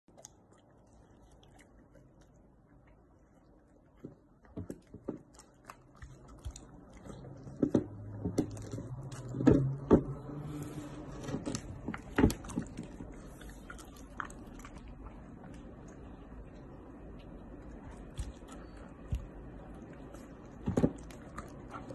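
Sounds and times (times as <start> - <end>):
dog chewing raw meat: 0.0 - 21.9
low hum: 5.9 - 21.9.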